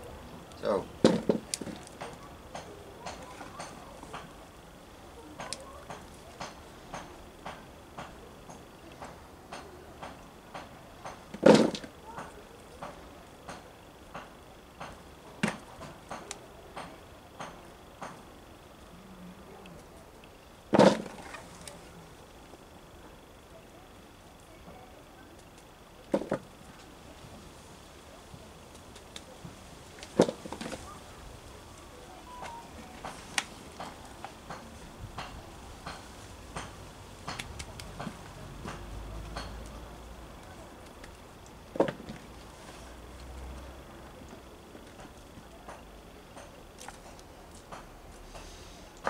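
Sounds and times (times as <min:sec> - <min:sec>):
sharp knocks: 0:01.0 - 0:03.2
potatoes thudding into plastic bowl: 0:20.7 - 0:21.2.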